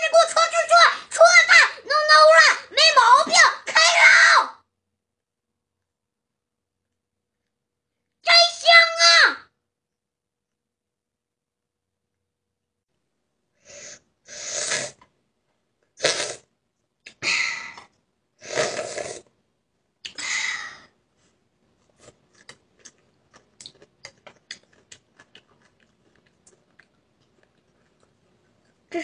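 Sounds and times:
loud breathy bursts: 13.6 - 15.0
mouth clicks of chewing: 22.0 - 28.8.

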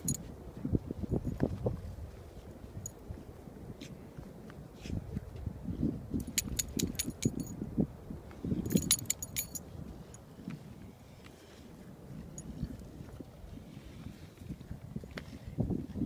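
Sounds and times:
dog collar tags jingling: 0.0 - 0.2, 6.2 - 7.6, 8.6 - 9.7.

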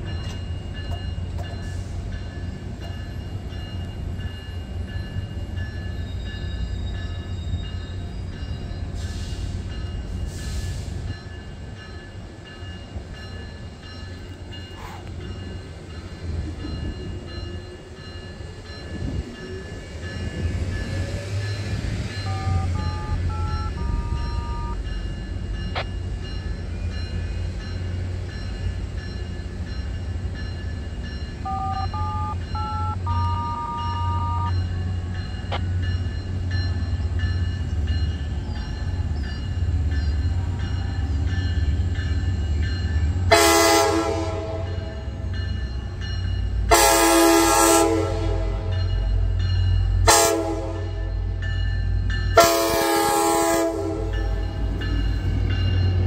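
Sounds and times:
low train rumble: 0.0 - 56.0
electronic chime tune: 22.2 - 24.8, 31.4 - 34.8
train horn blasts: 22.3 - 24.8, 31.5 - 34.6, 43.3 - 45.0, 46.7 - 48.8, 50.0 - 51.1, 52.4 - 54.2.

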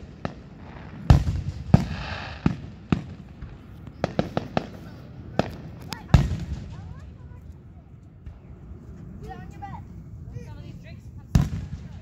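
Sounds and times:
crackling hiss: 0.0 - 6.8
firework booms: 0.0 - 7.0, 11.3 - 12.0
sharp firework cracks: 0.0 - 7.0.

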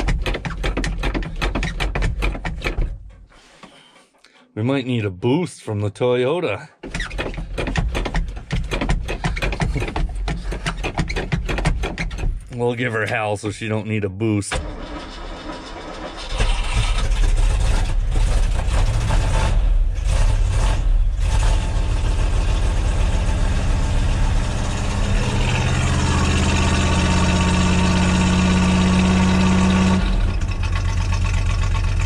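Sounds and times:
truck engine starting and idling: 0.0 - 4.2, 6.6 - 32.0.

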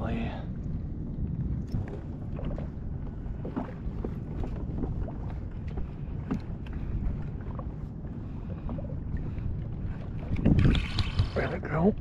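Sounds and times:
water lapping against hull: 0.0 - 12.0
wind rumbling on microphone: 0.0 - 12.0
splashes: 10.2 - 11.8.

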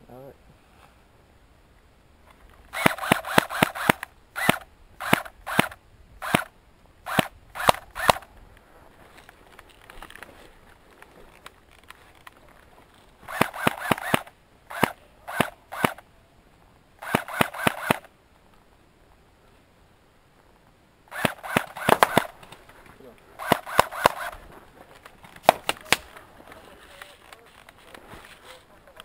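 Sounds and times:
airsoft gun firing: 2.7 - 6.5, 7.1 - 8.3, 13.3 - 16.0, 17.0 - 18.1, 21.1 - 22.4, 23.4 - 24.4, 25.4 - 26.2.

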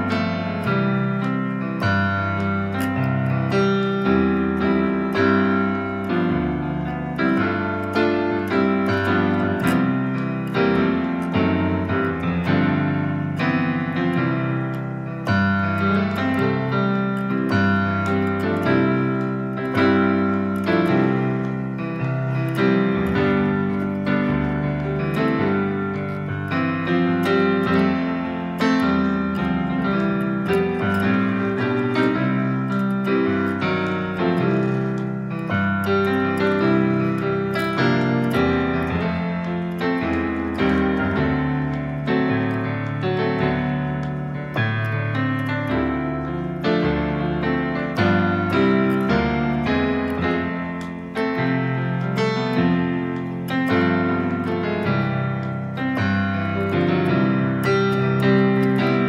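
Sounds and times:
electronic keyboard playing piano voice: 0.0 - 59.0.

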